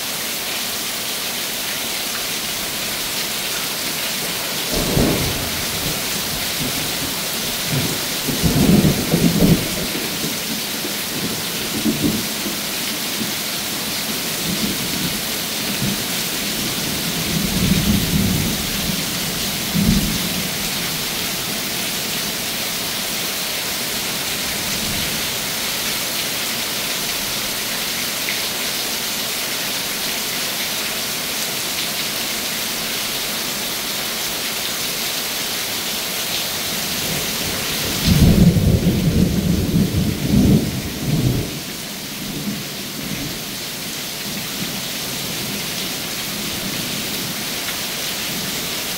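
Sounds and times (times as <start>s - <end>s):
heavy rain falling: 0.0s - 48.9s
thunder rumbling: 4.7s - 10.4s.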